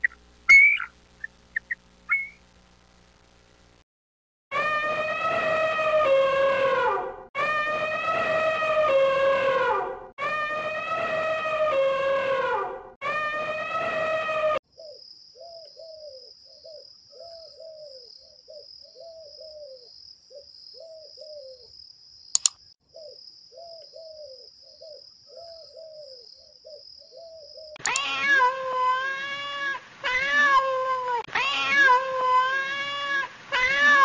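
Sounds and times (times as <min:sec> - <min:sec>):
faint short calls: 0:00.0 - 0:02.4
sharp click: 0:22.4 - 0:22.6, 0:27.8 - 0:28.1
cat meowing loudly: 0:27.8 - 0:34.0.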